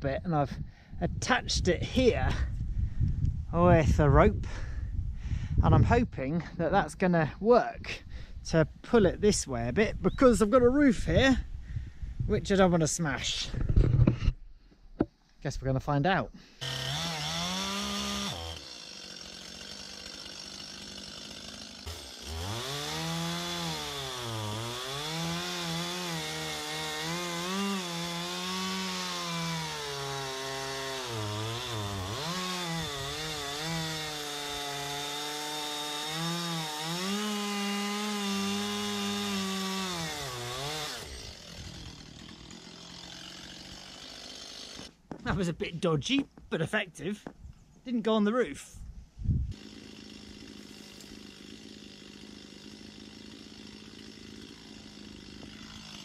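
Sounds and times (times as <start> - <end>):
chainsaw cutting wood: 16.6 - 45.3, 49.5 - 56.0.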